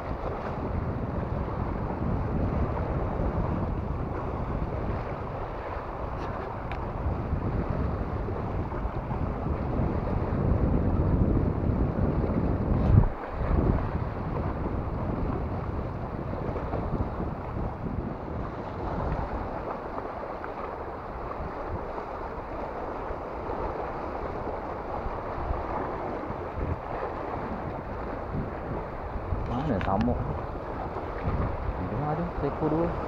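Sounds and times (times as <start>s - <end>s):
wind buffeting microphone: 0.0s - 33.0s
small waves breaking on rocks: 12.3s - 15.6s, 16.4s - 33.0s.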